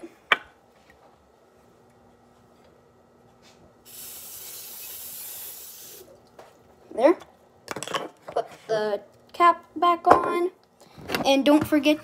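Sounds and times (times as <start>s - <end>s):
aerosol cooking spray hissing: 3.8s - 6.1s.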